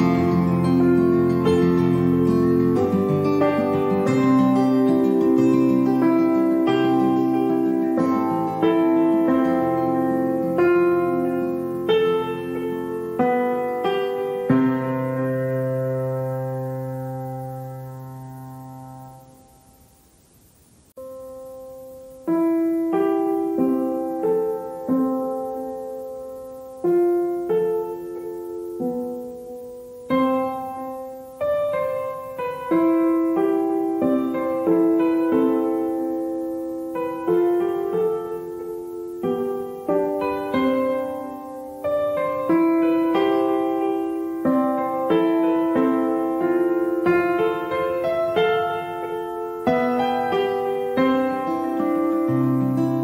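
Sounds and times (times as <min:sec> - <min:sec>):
slow solo piano: 0:00.0 - 0:53.0.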